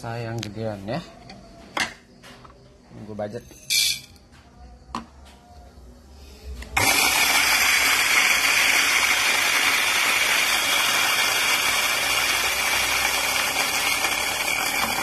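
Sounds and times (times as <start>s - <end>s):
coffee grinder grinding: 6.8s - 15.0s.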